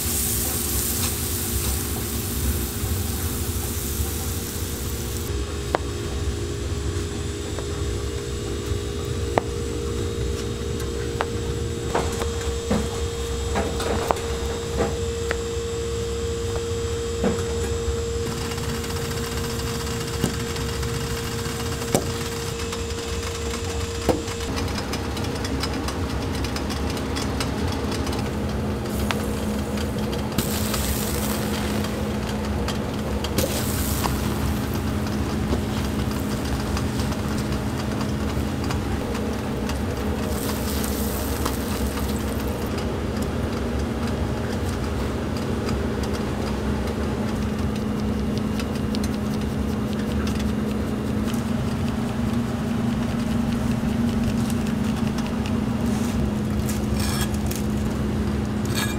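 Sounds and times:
bread sizzling on a griddle: 0.0 - 5.3, 28.9 - 32.4, 33.4 - 37.4, 40.1 - 42.7
low mechanical hum: 0.0 - 58.9.

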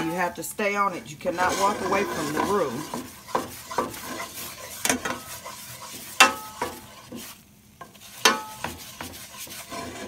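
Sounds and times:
roux sizzling: 0.0 - 10.0
spatula scraping a skillet: 0.0 - 10.0
spatula knocking against pan: 6.2 - 9.6.

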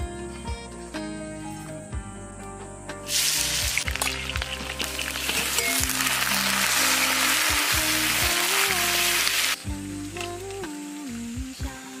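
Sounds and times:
background music: 0.0 - 12.0
food sizzling in hot oil: 3.1 - 12.0.

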